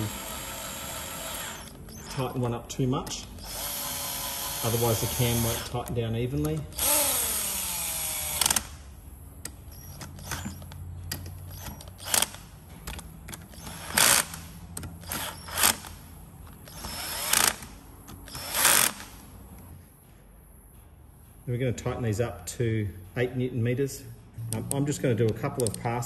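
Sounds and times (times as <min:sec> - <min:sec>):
cordless drill driving bolts: 0:00.0 - 0:08.8, 0:09.4 - 0:19.2
drill clutch ratcheting: 0:00.0 - 0:08.8, 0:09.4 - 0:19.3, 0:24.5 - 0:26.0.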